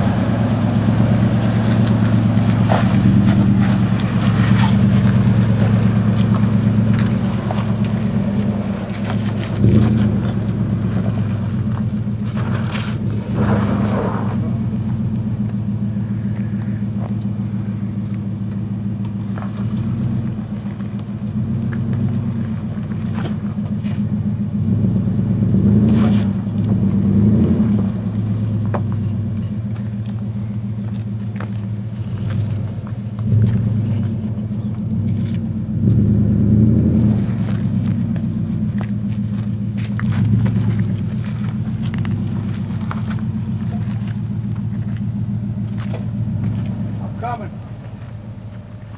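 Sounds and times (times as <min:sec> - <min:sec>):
truck engine low drone: 0:00.0 - 0:48.9.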